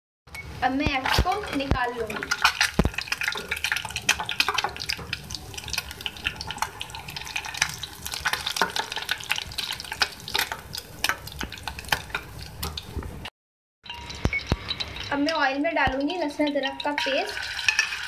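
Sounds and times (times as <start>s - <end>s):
eggs sizzling in hot oil: 0.4s - 18.0s
slotted spoon scraping a pan: 16.7s - 18.0s.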